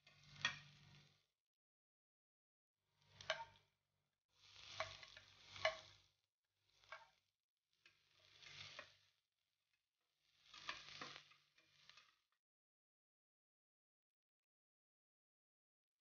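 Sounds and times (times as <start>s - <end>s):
garlic and onion sizzling in oil: 0.0s - 1.2s, 3.0s - 3.6s, 4.3s - 9.2s, 10.2s - 12.3s
spatula clicking against pan: 3.2s - 3.6s, 4.7s - 6.0s
metal spatula scraping pan: 4.5s - 6.0s, 8.0s - 9.0s, 10.5s - 12.2s.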